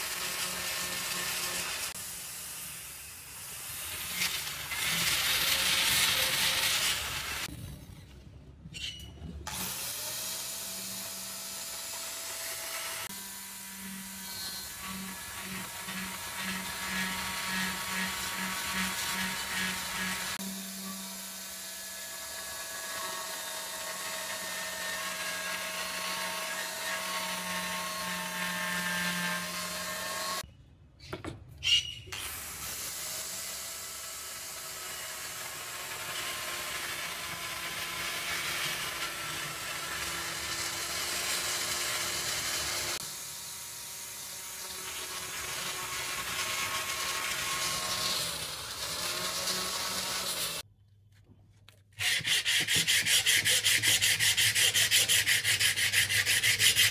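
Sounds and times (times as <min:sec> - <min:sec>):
angle grinder grinding metal: 0:03.7 - 0:07.5, 0:12.0 - 0:30.4, 0:44.2 - 0:50.6.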